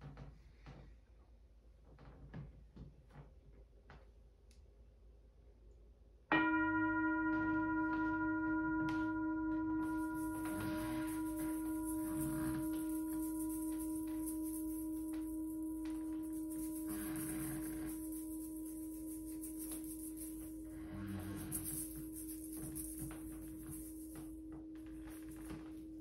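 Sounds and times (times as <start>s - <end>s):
singing bowl ringing: 6.3s - 26.0s.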